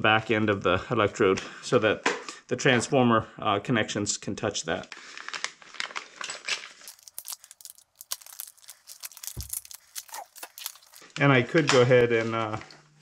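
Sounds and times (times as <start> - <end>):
plastic packaging crinkling: 4.9 - 11.2.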